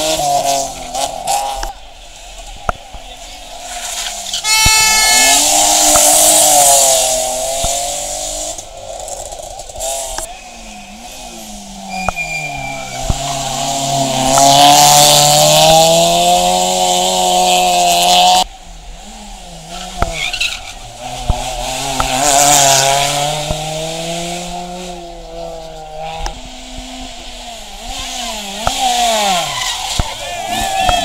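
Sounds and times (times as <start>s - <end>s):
rally car engines at high revs: 0.0s - 31.0s
tyres squealing: 11.7s - 15.8s, 28.7s - 31.0s.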